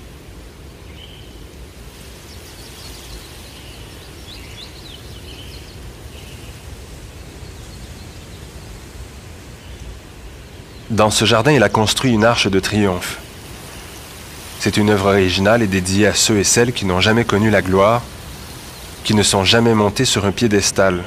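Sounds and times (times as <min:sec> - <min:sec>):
faint bird chirps: 0:00.7 - 0:08.9, 0:13.2 - 0:20.9.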